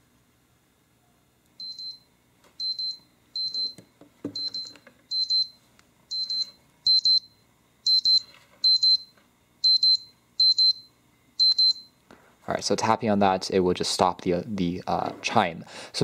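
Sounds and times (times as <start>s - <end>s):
alarm clock beeping: 1.6s - 2.0s, 2.6s - 3.8s, 4.4s - 11.9s.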